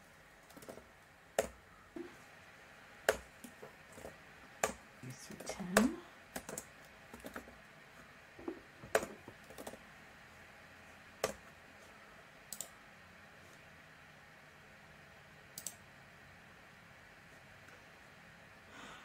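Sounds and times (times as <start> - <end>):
keyboard keystrokes: 3.1 - 7.5, 11.2 - 11.4.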